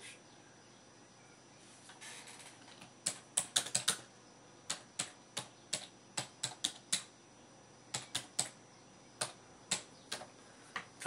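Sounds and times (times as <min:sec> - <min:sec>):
keyboard typing clicks: 0:03.0 - 0:04.0, 0:04.7 - 0:07.1, 0:07.9 - 0:08.6.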